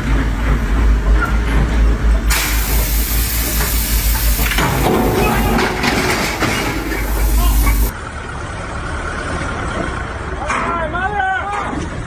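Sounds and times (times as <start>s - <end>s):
deep engine rumble: 0.0s - 10.4s
excavator hydraulic hiss: 2.3s - 5.6s, 6.3s - 7.9s.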